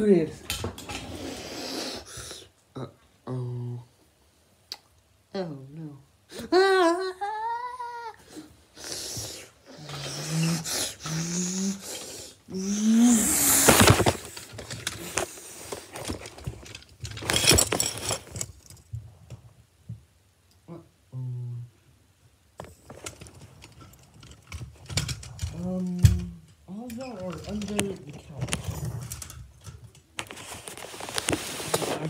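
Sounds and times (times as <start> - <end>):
child making vocal noises: 6.5 - 8.5, 12.5 - 13.7
phone handling rustling: 13.6 - 18.8.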